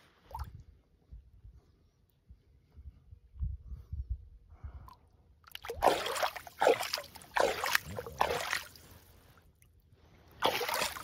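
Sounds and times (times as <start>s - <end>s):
hand splashing in shallow water: 5.5s - 9.0s, 10.4s - 11.0s.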